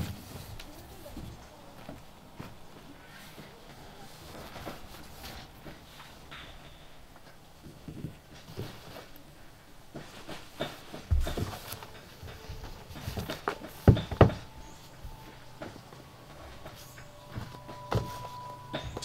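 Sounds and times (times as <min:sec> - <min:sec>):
books set down on wooden floor: 0:09.9 - 0:15.0, 0:16.4 - 0:19.0.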